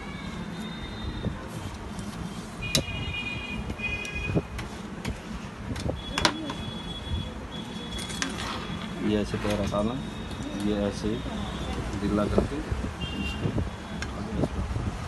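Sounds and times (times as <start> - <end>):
low traffic rumble: 0.0 - 15.0.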